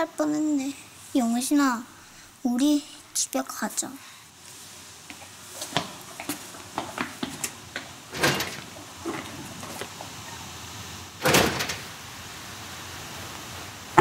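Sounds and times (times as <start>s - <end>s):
footsteps walking: 4.5s - 10.5s
door opening: 5.7s - 10.5s, 11.2s - 11.9s
door shutting: 6.8s - 10.4s, 11.2s - 12.0s.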